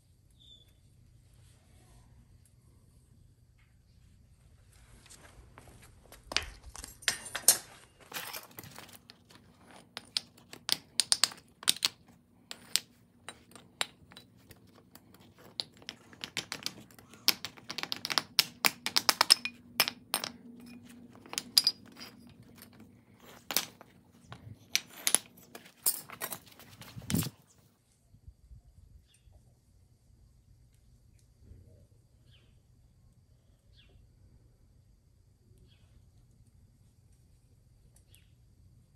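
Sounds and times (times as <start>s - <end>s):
metal ingots clanking on concrete: 6.3s - 27.3s.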